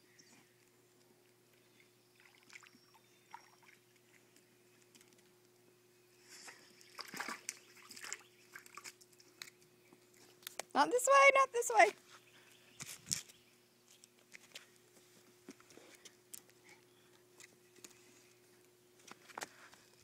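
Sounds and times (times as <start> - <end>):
lake water splashing: 1.8 - 4.4, 6.5 - 9.6.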